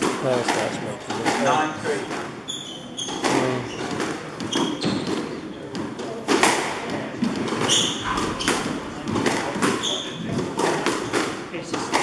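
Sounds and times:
shoes squeaking on wooden floor: 0.6 - 5.5, 7.3 - 10.8
squash ball thuds: 3.1 - 12.0.

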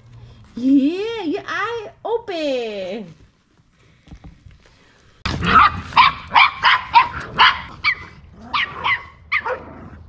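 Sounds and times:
dog yapping: 5.4 - 9.8.

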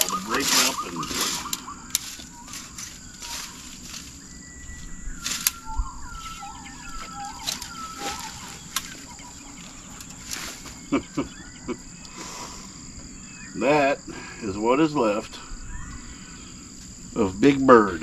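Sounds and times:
rake scraping dry grass: 0.0 - 4.2, 10.2 - 10.8
bird chirping: 0.0 - 18.0
high insect buzz: 0.0 - 18.0.

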